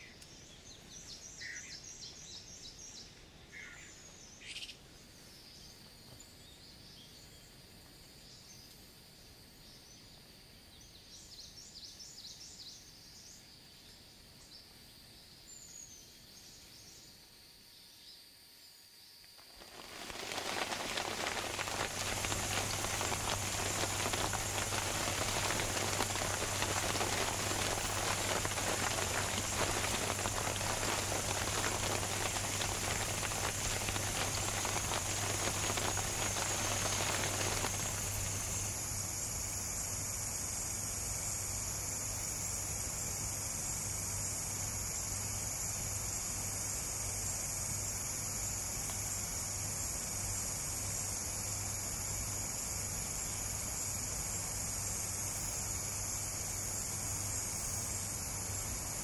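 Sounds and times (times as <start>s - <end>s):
high insect trill: 15.2s - 59.0s
rain pattering: 19.4s - 39.0s.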